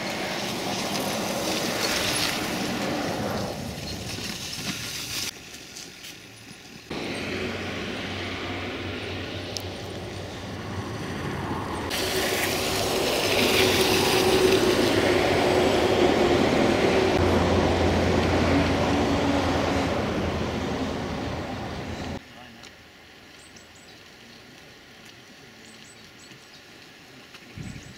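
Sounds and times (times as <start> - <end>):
tyres rushing on dirt road: 0.0 - 27.9
low engine hum: 6.9 - 22.2.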